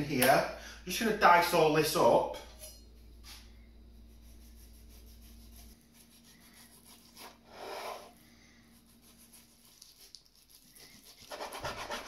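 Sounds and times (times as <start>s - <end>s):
knife cutting on wooden board: 11.0s - 12.0s.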